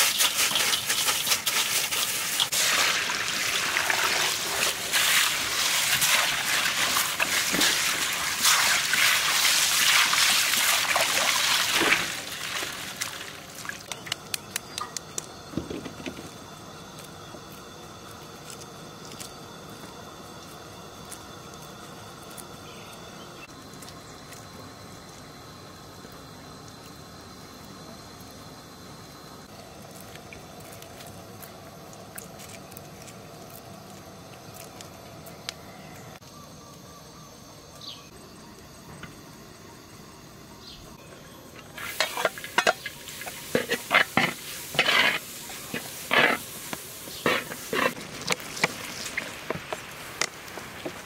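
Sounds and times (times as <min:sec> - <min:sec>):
food sizzling in a pan: 0:00.0 - 0:13.6, 0:41.7 - 0:51.0.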